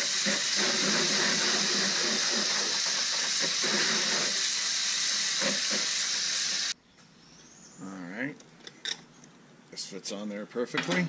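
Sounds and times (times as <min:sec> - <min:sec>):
hose spray hissing: 0:00.0 - 0:06.8.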